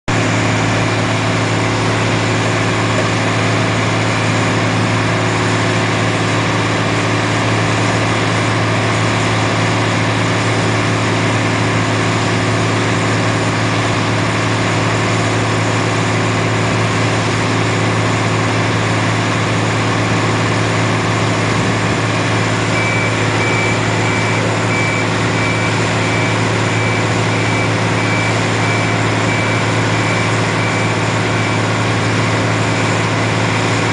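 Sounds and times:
reversing alarm beeping: 0.1s - 6.1s, 16.8s - 33.9s
diesel machinery droning: 0.1s - 33.9s.

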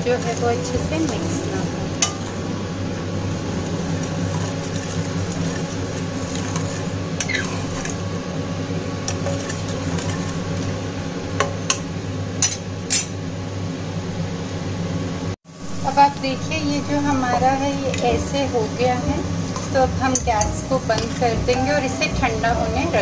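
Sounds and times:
low hum: 0.0s - 23.0s
ladle stirring milk in pot: 3.8s - 8.1s, 9.1s - 10.9s.

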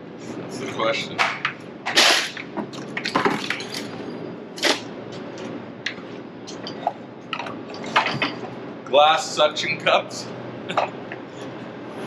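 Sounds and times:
hard objects clinking and knocking: 6.5s - 8.5s.

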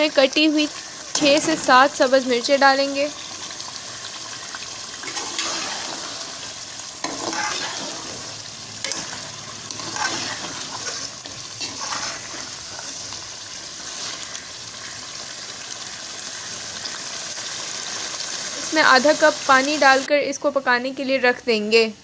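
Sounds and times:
curry sizzling in a pot: 0.0s - 21.0s
metal spatula scraping a pot: 5.0s - 13.2s.

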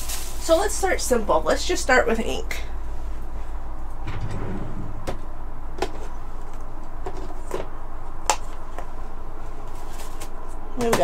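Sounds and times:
steady low hum: 1.1s - 9.7s.

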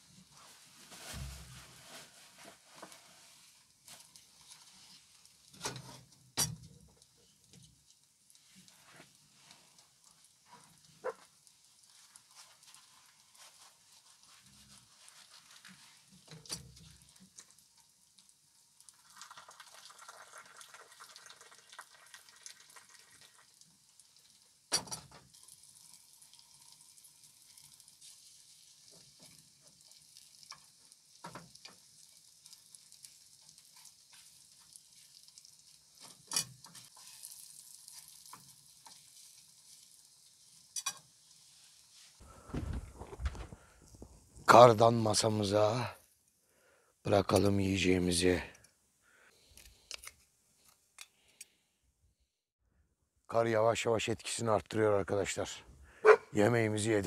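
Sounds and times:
sausage sizzling in oil: 0.0s - 42.2s.

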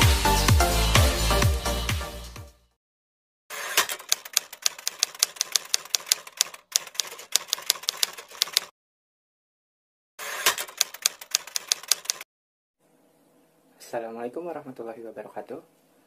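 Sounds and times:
electronic dance music: 0.0s - 2.5s
typewriter key clicks: 3.8s - 8.7s, 10.5s - 12.2s.

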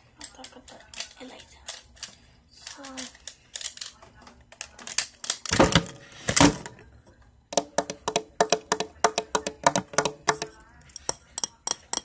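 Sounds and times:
tapping on hard object: 7.5s - 12.0s.

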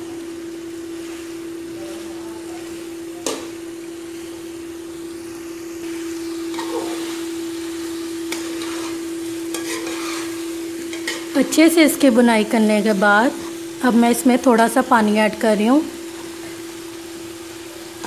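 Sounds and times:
food sizzling: 0.0s - 18.0s
steady hum: 0.0s - 18.0s
spoon scraping pot: 8.3s - 11.4s.

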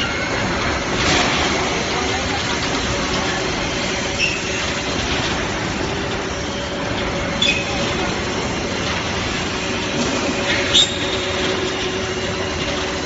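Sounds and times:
machinery droning: 0.0s - 13.0s
high metallic squeaks: 4.2s - 4.7s, 7.4s - 7.9s.

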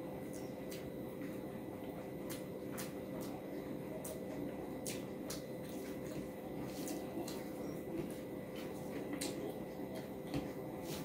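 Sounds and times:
chewing: 0.2s - 11.0s
fingers mixing rice on a plate: 2.0s - 11.0s.

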